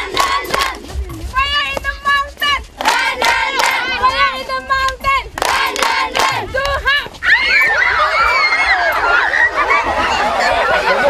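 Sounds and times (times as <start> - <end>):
girls singing in unison: 0.0 - 0.9, 2.8 - 4.2, 5.4 - 6.5
hand claps: 0.0 - 0.9, 2.8 - 3.9, 4.8 - 6.8.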